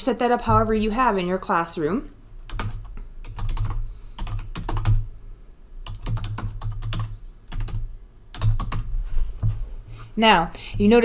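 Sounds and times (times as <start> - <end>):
typing on computer keyboard: 2.5 - 5.0, 5.8 - 8.9.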